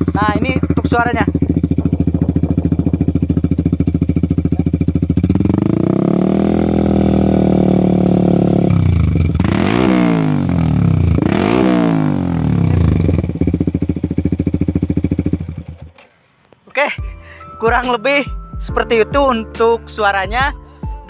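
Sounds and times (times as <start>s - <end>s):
motorcycle engine idling and revving: 0.0s - 16.2s.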